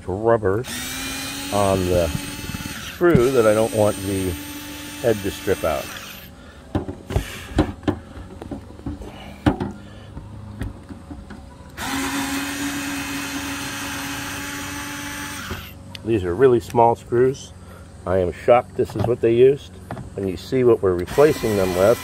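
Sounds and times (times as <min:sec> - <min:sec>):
power screwdriver humming: 0:00.6 - 0:06.3, 0:11.8 - 0:15.8, 0:21.1 - 0:22.0.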